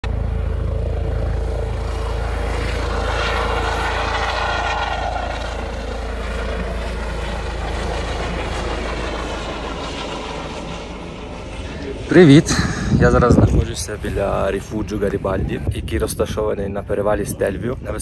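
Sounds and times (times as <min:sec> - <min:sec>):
higher engine tone falling: 0:00.0 - 0:13.9
engine running: 0:00.0 - 0:14.7.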